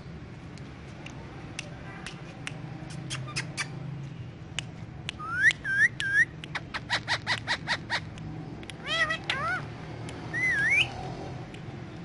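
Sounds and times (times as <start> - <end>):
parakeet clicking chirps: 2.1 - 3.8, 4.6 - 10.9
parakeet clicks: 4.5 - 10.4
parakeet rising whistles: 10.3 - 11.0.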